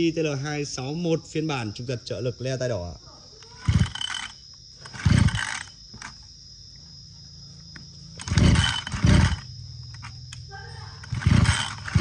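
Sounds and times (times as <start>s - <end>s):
brush cutter engine cranking pulls: 3.4s - 6.2s, 8.1s - 12.0s.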